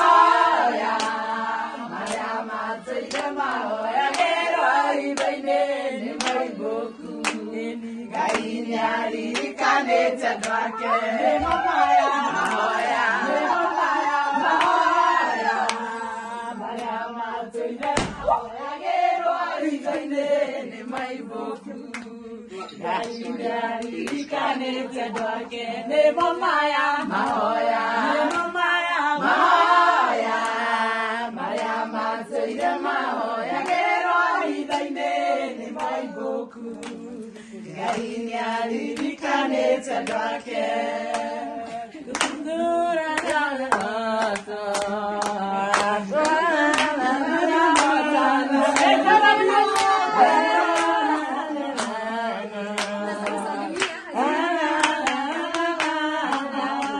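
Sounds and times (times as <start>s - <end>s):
women singing together: 0.0s - 56.9s
hand clapping: 0.8s - 1.3s, 2.0s - 13.5s, 14.5s - 14.8s, 15.6s - 15.9s, 16.7s - 17.0s, 17.8s - 18.4s, 20.9s - 21.2s, 21.9s - 22.2s, 23.0s - 24.4s, 25.1s - 25.4s, 26.1s - 28.6s, 31.4s - 34.9s, 35.8s - 36.0s, 36.6s - 52.0s, 52.7s - 56.9s.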